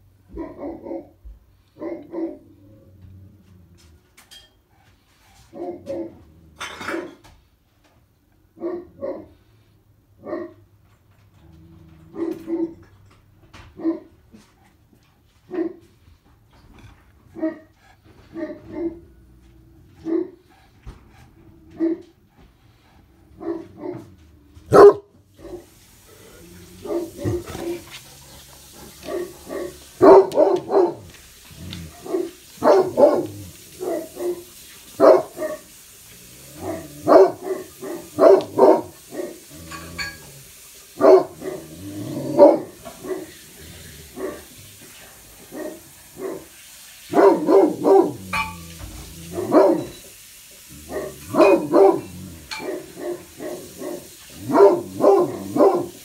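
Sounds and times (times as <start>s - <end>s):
dog barking deep woofs: 0.3s - 1.2s, 1.8s - 2.5s, 8.6s - 9.4s, 10.2s - 10.6s, 12.1s - 12.8s, 18.3s - 19.1s, 19.9s - 20.4s, 21.7s - 22.1s, 23.4s - 35.8s, 36.5s - 39.5s, 40.9s - 43.4s, 44.1s - 44.6s, 45.4s - 46.5s, 47.1s - 48.5s, 49.2s - 49.9s, 50.7s - 56.0s.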